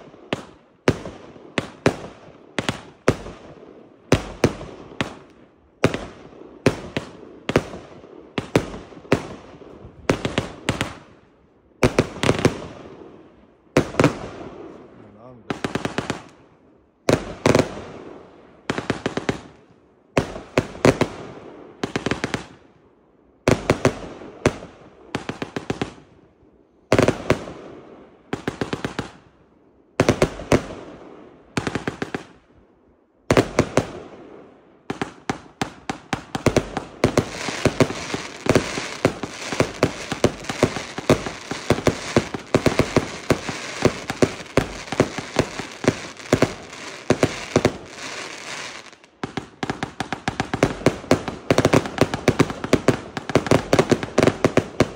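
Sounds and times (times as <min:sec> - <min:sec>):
fireworks bursting overhead: 0:00.0 - 0:22.7, 0:23.5 - 0:26.3, 0:26.9 - 0:32.5, 0:33.2 - 0:54.9
firework shots launching: 0:35.0 - 0:49.4.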